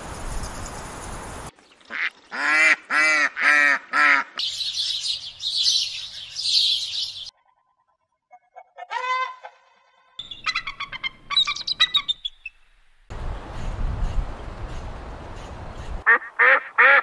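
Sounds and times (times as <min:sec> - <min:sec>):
duck quacking: 0:01.9 - 0:04.4, 0:16.0 - 0:17.0.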